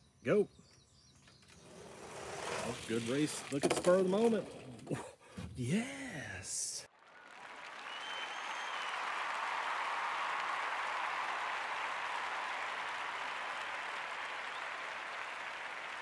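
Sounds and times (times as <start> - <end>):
crowd applause and cheering: 6.9 - 16.0.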